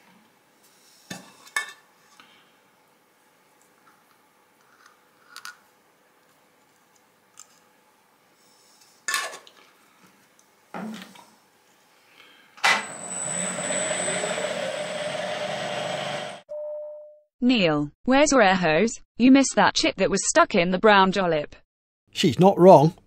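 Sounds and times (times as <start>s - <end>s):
milling machine motor whining: 12.7s - 16.4s.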